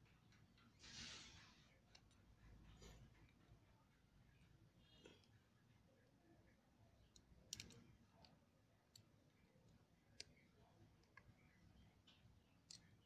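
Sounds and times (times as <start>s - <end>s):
pliers clicking on metal: 7.5s - 7.8s.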